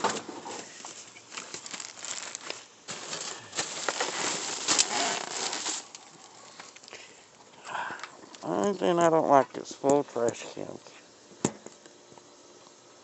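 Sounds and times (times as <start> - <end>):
plastic bags crinkling: 0.5 - 6.9.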